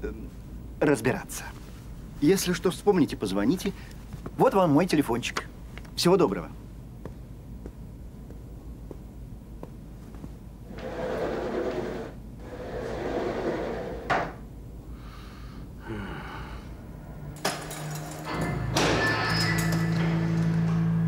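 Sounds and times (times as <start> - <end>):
door opening and shutting: 10.7 - 14.4, 17.3 - 21.0.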